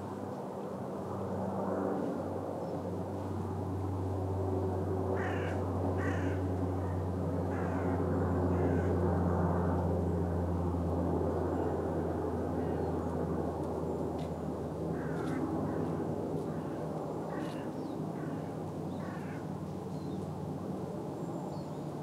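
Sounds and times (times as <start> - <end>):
crow cawing: 5.2 - 6.4, 7.5 - 9.0, 15.0 - 15.9, 16.5 - 19.4.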